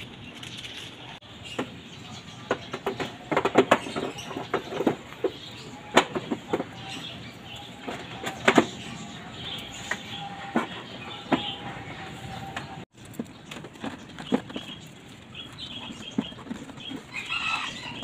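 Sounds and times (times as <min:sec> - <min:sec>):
plastic knocks and clatter: 0:02.5 - 0:06.8.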